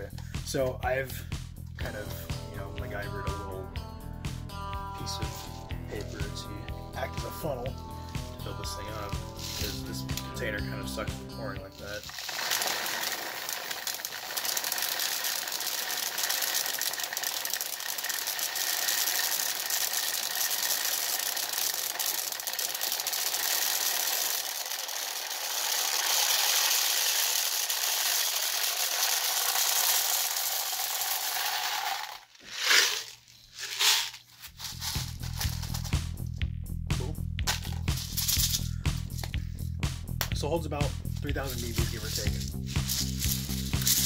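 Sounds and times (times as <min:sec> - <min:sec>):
plastic pellets pouring rattle: 0:08.4 - 0:09.9, 0:11.8 - 0:36.0, 0:37.5 - 0:39.3, 0:41.2 - 0:44.0.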